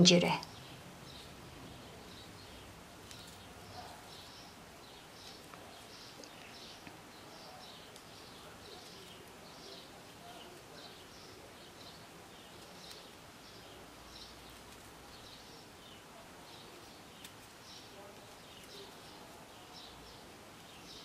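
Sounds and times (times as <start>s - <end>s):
low steady hiss: 0.0s - 21.0s.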